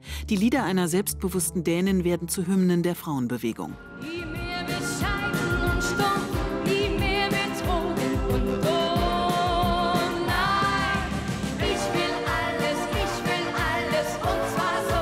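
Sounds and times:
woman singing: 4.0 - 15.0.

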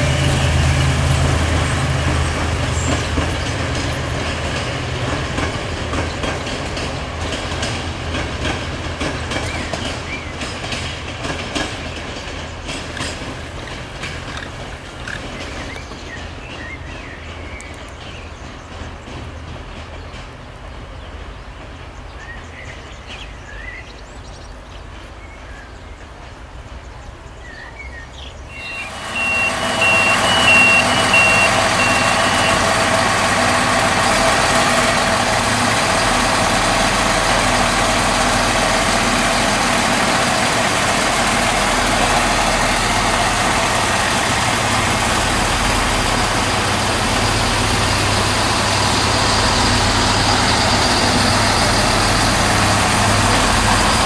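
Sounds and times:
rail yard ambience: 0.0 - 54.0
train diesel engines running: 0.0 - 54.0
birds chirping: 26.9 - 33.0
short high beeps: 28.6 - 32.6.

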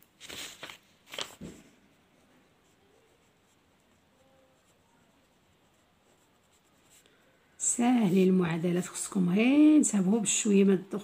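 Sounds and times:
pen scratching on paper: 2.5 - 7.0.

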